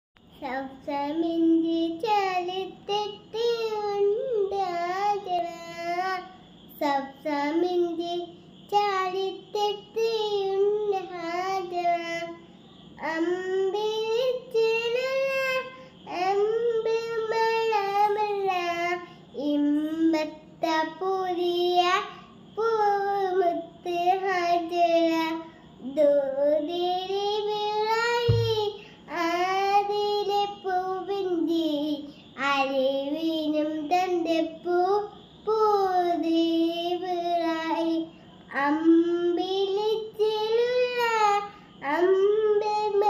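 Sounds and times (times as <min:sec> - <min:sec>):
girl singing unaccompanied: 0:00.2 - 0:43.0
low thump: 0:28.3 - 0:28.7.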